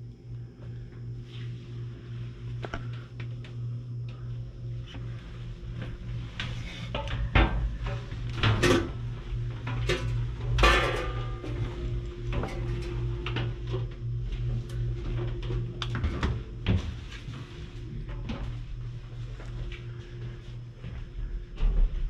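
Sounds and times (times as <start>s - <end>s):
steady low hum: 0.0s - 22.0s
knocks and clanks: 9.6s - 13.5s.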